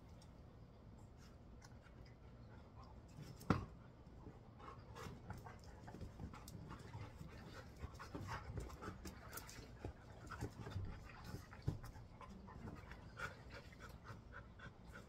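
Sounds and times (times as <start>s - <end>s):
dog panting: 4.2s - 15.0s.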